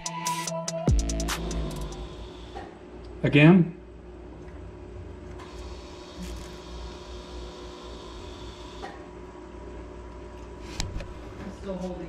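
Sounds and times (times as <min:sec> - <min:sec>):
electric pump motor whirring: 0:04.9 - 0:09.2.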